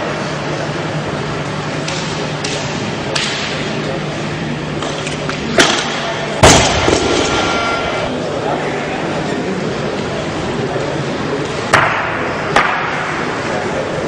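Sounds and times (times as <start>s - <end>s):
hall murmur: 1.0s - 11.4s.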